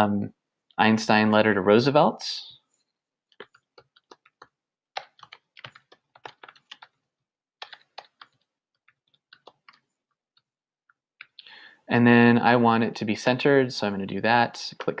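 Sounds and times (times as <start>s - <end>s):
typing on computer keyboard: 3.3s - 7.0s, 7.6s - 9.9s.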